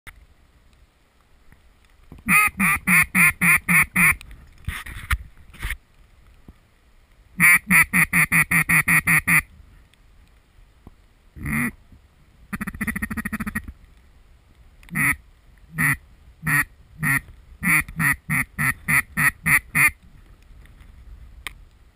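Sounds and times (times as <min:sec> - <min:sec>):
duck quacking: 0:02.3 - 0:04.2, 0:07.4 - 0:09.5, 0:11.4 - 0:11.8, 0:12.5 - 0:13.7, 0:14.9 - 0:20.0.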